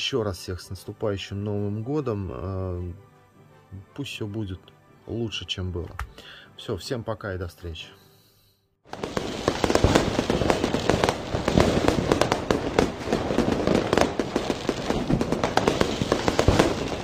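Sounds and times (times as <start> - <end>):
fireworks cracking and popping: 8.9 - 17.0.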